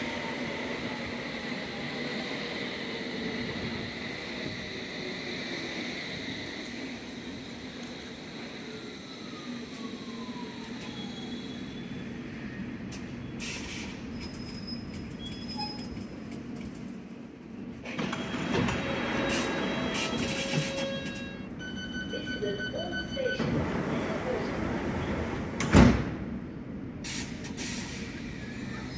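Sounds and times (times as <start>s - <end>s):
train humming: 0.0s - 13.2s, 16.1s - 25.7s
sliding doors opening: 17.8s - 21.4s, 23.4s - 26.2s.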